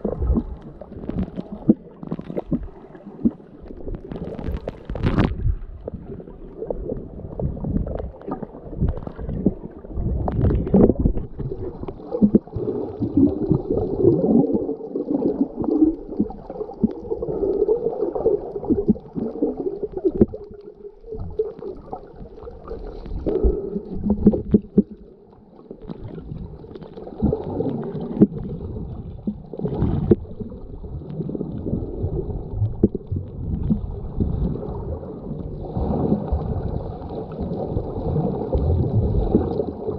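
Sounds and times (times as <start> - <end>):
water sloshing underwater: 0.0 - 39.9.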